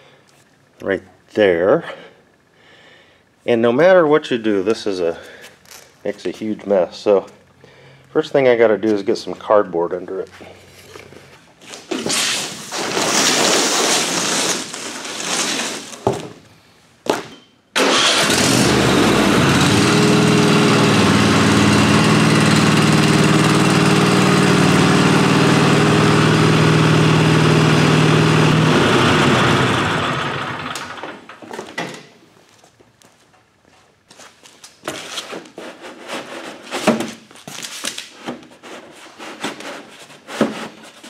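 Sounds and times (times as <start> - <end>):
cardboard rustling: 10.7 - 16.4, 34.1 - 41.0
lawn tractor engine running: 17.8 - 31.4.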